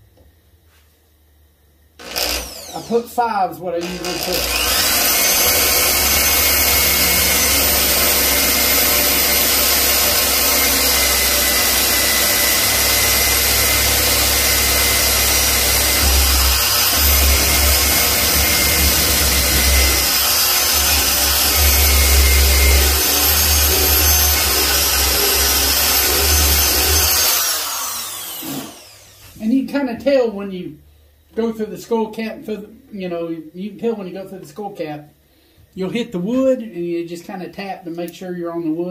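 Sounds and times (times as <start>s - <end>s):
electric drill boring through antler: 2.0s - 3.1s, 3.8s - 29.4s.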